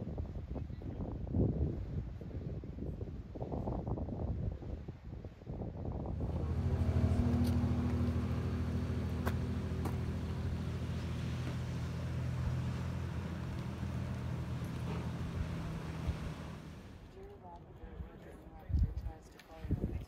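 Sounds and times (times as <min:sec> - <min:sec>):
faint wind: 0:00.0 - 0:20.0
vehicle engine idling: 0:06.2 - 0:17.1.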